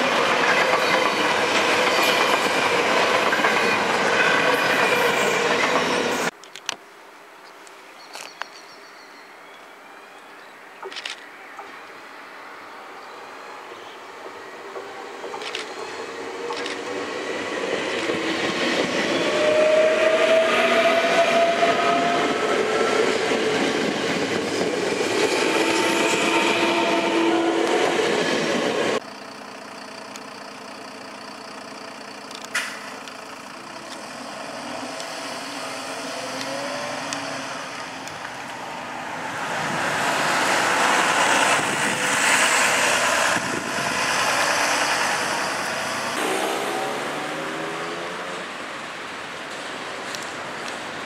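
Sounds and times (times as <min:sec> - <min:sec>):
electric train passing: 0:00.0 - 0:06.3, 0:12.0 - 0:51.0
city bus engine running: 0:29.0 - 0:37.2.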